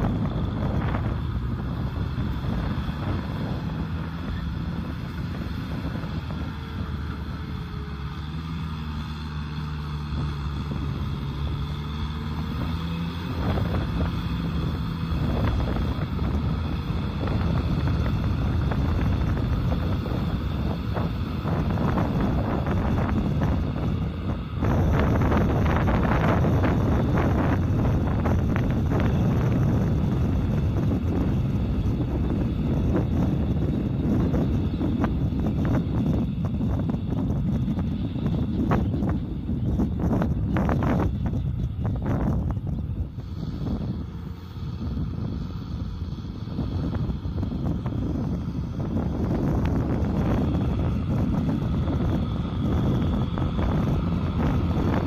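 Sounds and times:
tractor diesel engine under load: 0.0s - 55.0s
wind on microphone: 0.0s - 55.0s.

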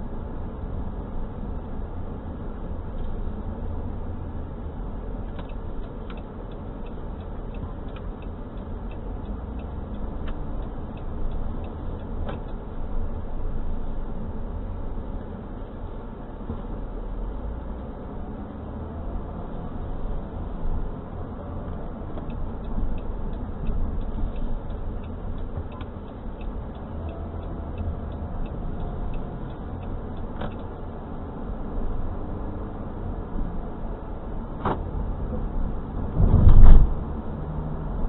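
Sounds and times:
car engine and tyre rumble: 0.0s - 38.0s
light ticks: 2.8s - 3.2s, 5.2s - 13.9s, 19.1s - 32.0s.

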